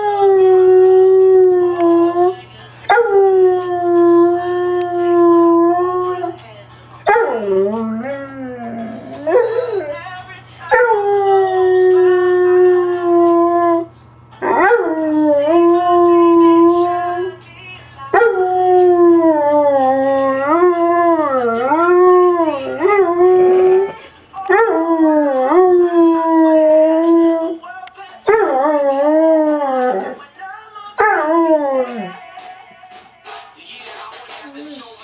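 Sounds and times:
music: 0.0 - 35.0
dog howling: 18.2 - 27.6, 28.3 - 30.2, 31.0 - 32.2.

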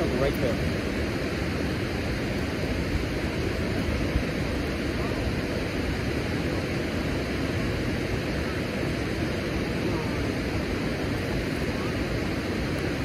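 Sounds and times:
fast water rushing: 0.0 - 13.0.

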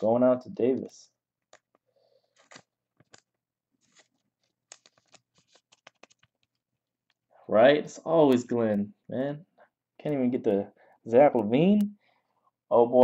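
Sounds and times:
trading cards being shuffled: 1.4 - 7.2.

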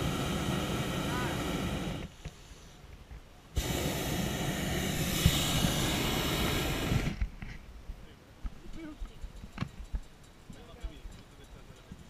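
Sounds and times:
propane burner blast: 0.0 - 2.8, 3.5 - 7.3.

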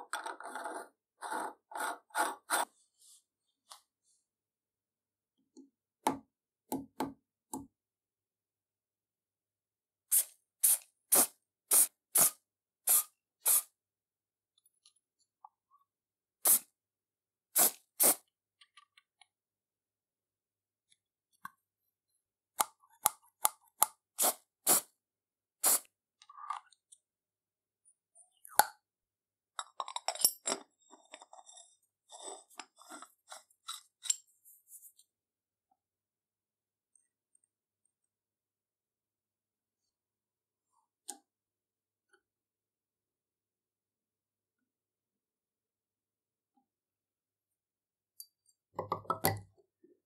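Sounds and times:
aerosol spray hissing: 10.1 - 13.7, 16.4 - 16.6, 25.6 - 25.9.

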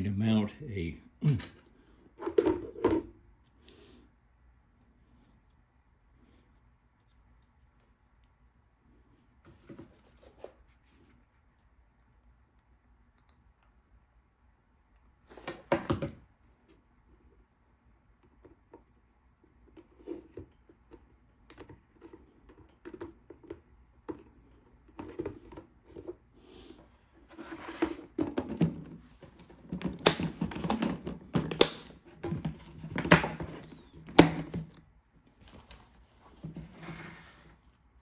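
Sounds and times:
plastic rubbing and knocking: 27.2 - 34.8.

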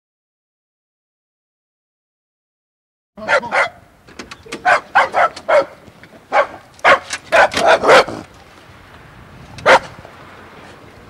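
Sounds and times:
dog barking: 3.2 - 3.8, 4.6 - 8.2, 9.6 - 9.9.

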